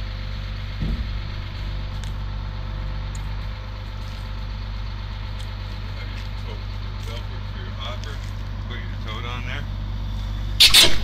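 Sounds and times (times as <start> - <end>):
diesel truck engine idling: 0.0 - 11.0
heavy low thump: 0.8 - 1.9.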